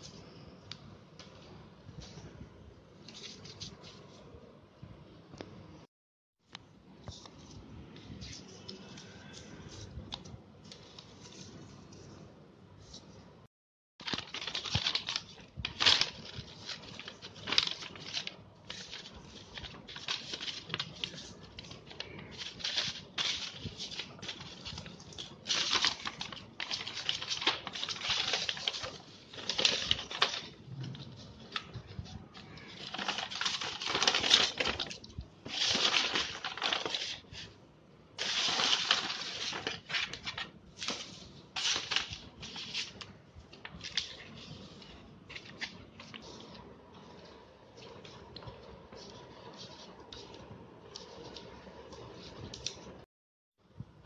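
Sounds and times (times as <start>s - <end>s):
paper and cardboard rustling: 14.0s - 37.6s, 38.2s - 53.0s.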